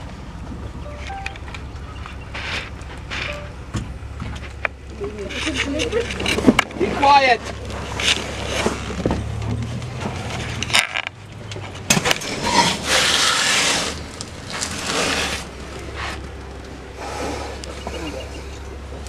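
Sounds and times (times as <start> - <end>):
low steady hum: 0.0 - 6.6
elephant scraping against vehicle: 1.8 - 19.0.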